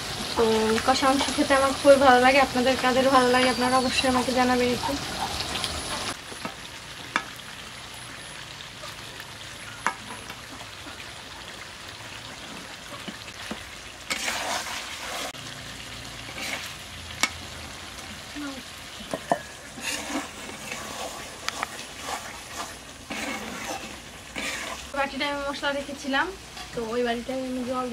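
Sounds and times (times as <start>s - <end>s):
chicken sizzling in a pan: 0.0s - 27.9s
stirring and scraping: 12.3s - 15.4s, 16.2s - 17.4s, 19.0s - 25.0s.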